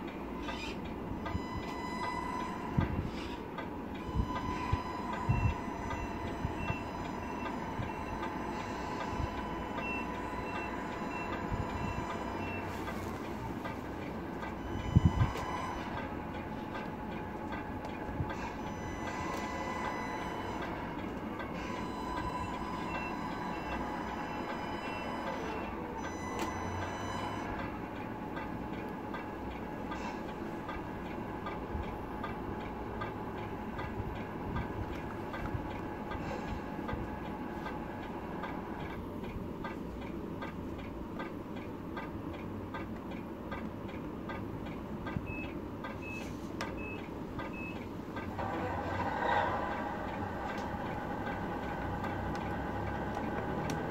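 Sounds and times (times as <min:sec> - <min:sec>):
short high beeps: 0:21.6 - 0:27.5
simulated diesel engine idling: 0:48.1 - 0:53.9.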